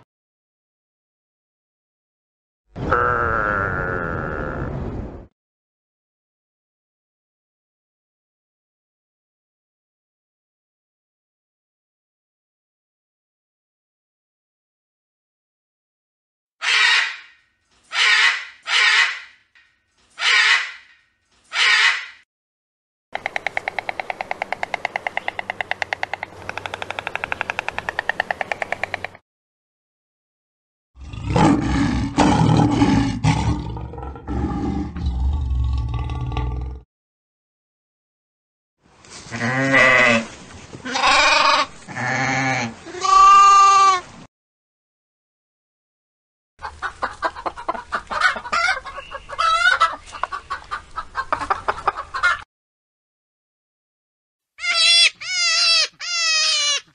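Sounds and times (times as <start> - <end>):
macaw squawking: 16.6 - 17.3, 17.9 - 19.4, 20.2 - 20.9, 21.5 - 22.2, 48.1 - 50.5, 54.6 - 56.9.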